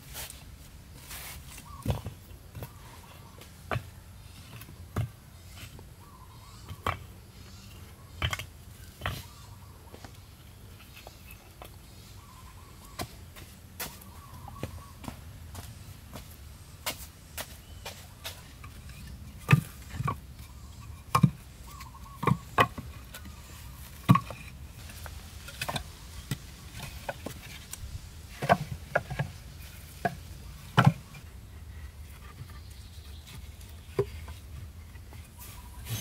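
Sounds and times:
wood knocks and thuds: 21.0 - 23.3, 23.9 - 24.5, 30.0 - 31.2.

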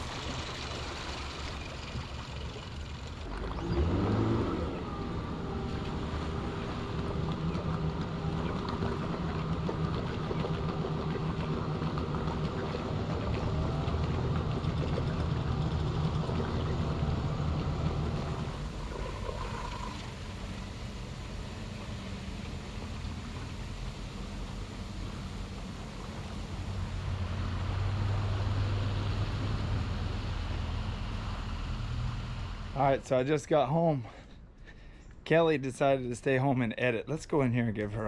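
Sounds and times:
outboard motor running: 0.0 - 33.1
propeller churning water: 0.0 - 35.4.

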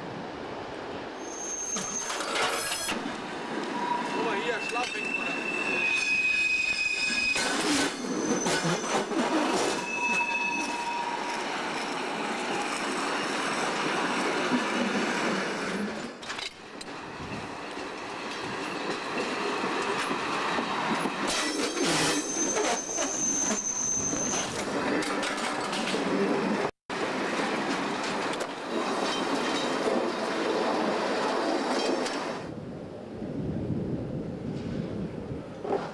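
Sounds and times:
wheel squeal: 1.2 - 3.0, 3.7 - 12.8, 21.2 - 26.3
wheels clattering over rail joints: 14.2 - 32.4.

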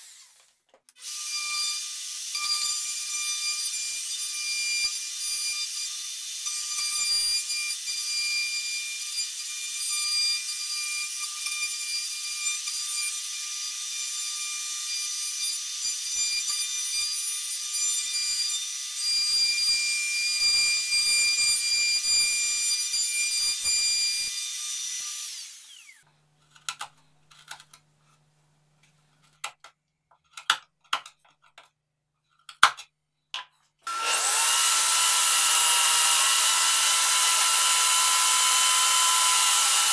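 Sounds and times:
power tool running: 0.0 - 2.3, 24.4 - 26.0, 33.8 - 39.9
router whining: 0.0 - 4.1, 24.2 - 26.0, 33.8 - 39.9.

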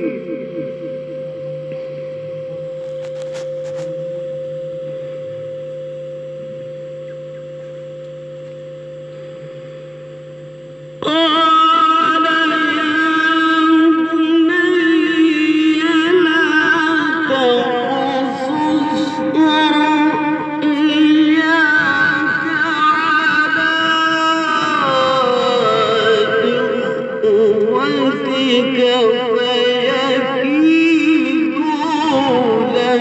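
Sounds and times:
person singing with vibrato: 0.0 - 2.4, 11.0 - 33.0
held drone: 0.0 - 33.0.

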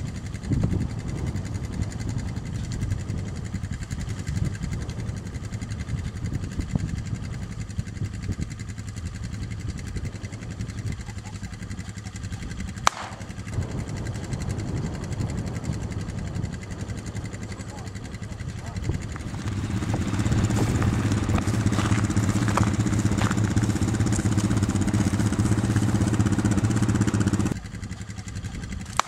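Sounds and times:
wind buffeting microphone: 0.0 - 29.0
sharp crack: 12.8 - 13.6, 19.2 - 27.6.

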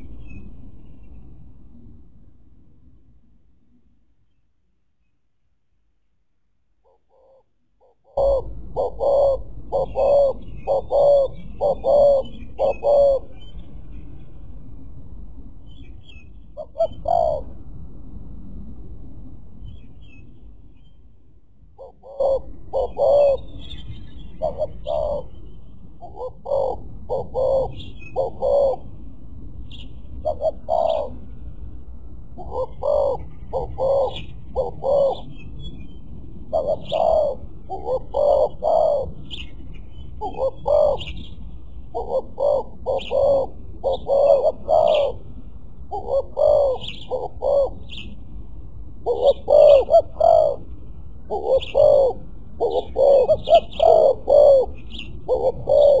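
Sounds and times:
doves cooing: 6.8 - 13.3, 16.6 - 17.5, 21.8 - 23.8, 24.4 - 25.4, 26.0 - 28.9, 30.2 - 31.2, 32.4 - 35.3, 36.5 - 39.5, 40.2 - 41.1, 41.9 - 45.2, 45.9 - 48.0, 49.0 - 56.0.

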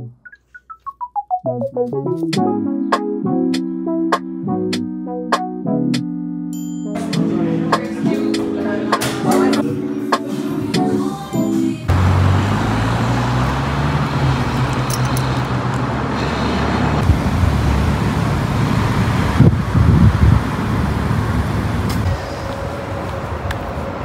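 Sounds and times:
traffic noise: 11.8 - 24.0
vehicle engine humming: 11.8 - 24.0.

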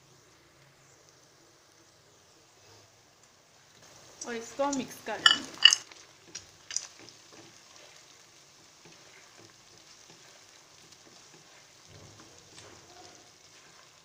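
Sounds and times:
food frying in oil: 0.0 - 14.0
spatula scraping wok: 4.6 - 14.0.

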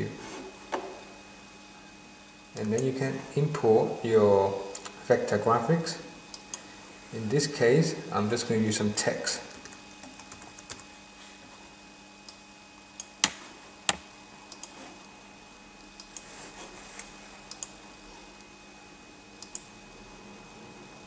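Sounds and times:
computer mouse and keyboard clicks: 13.0 - 14.8, 17.0 - 17.7.

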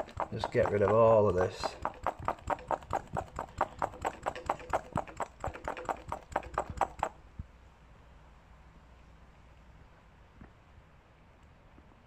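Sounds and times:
hand vacuum pump clicking: 0.0 - 7.2.

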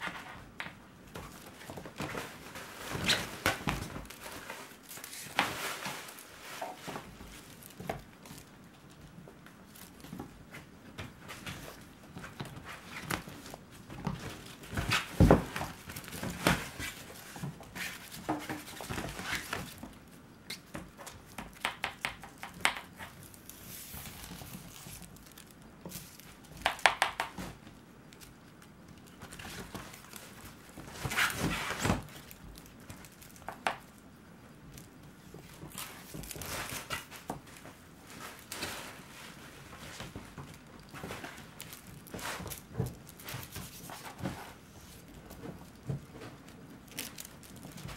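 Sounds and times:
fabric tent rustling: 1.2 - 8.5, 29.2 - 33.4.

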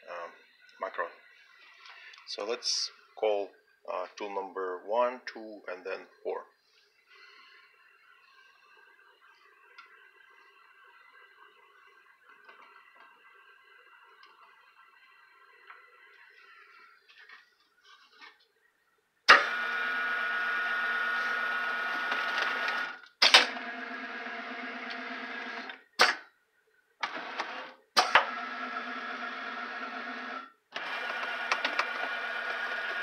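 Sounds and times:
mill motors whining: 27.0 - 33.0.

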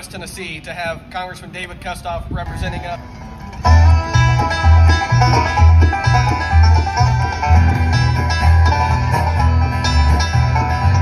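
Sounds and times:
bass line: 2.5 - 11.0
acoustic guitars strummed and picked: 3.0 - 11.0.

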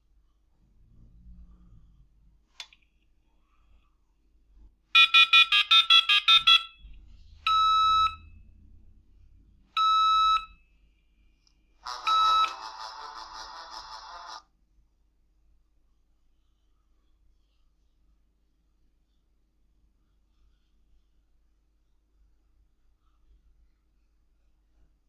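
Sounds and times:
modem touch-tone beeps: 5.0 - 6.8, 7.5 - 8.3, 9.8 - 10.6, 11.9 - 14.3
phone ringing beep: 5.0 - 6.8, 11.9 - 14.4
buzzy noise: 11.8 - 14.4.

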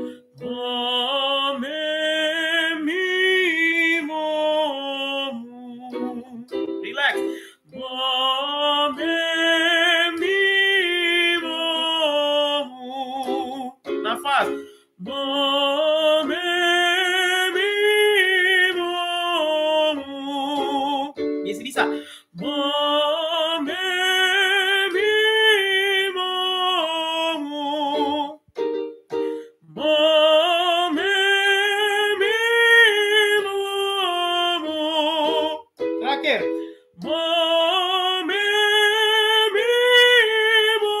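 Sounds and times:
man singing vocal scales: 0.0 - 28.5, 29.6 - 41.0
accompaniment chords: 5.9 - 8.0, 13.2 - 16.4, 35.3 - 37.6.

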